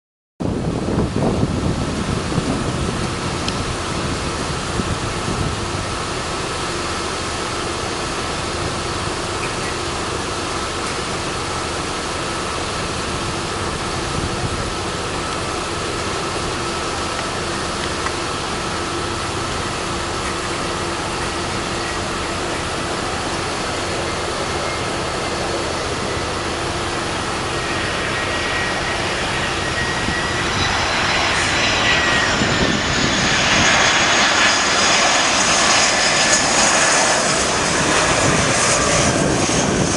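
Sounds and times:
wind buffeting microphone: 0.4 - 7.0, 12.4 - 18.3, 19.1 - 39.9
jet engine hum with whine: 0.4 - 39.9.

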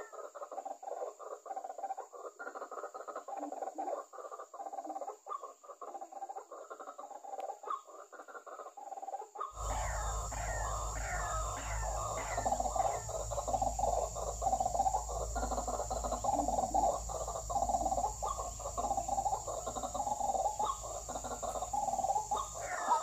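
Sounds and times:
steady high-pitched tone: 9.6 - 23.0
waterhens calling: 9.6 - 23.0.

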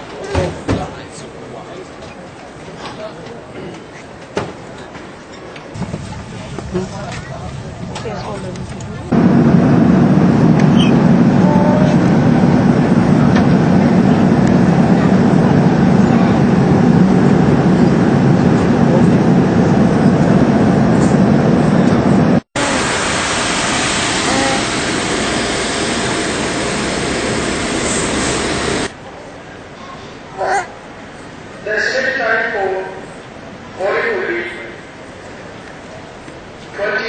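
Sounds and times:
airliner cabin drone: 5.7 - 29.7.

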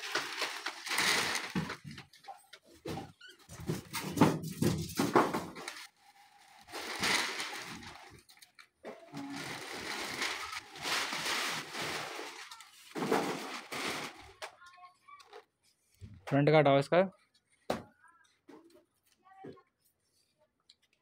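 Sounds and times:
packing scraping and rustling: 0.0 - 1.9, 5.6 - 14.4.

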